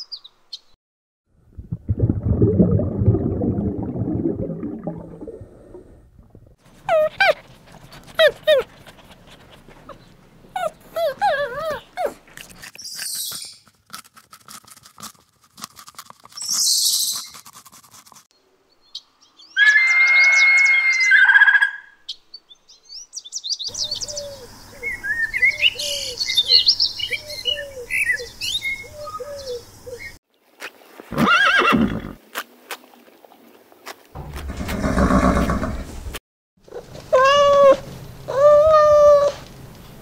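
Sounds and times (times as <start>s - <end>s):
bird of prey screaming: 19.6s - 22.0s
birds chirping: 22.1s - 30.2s
horse neighing: 34.4s - 35.9s.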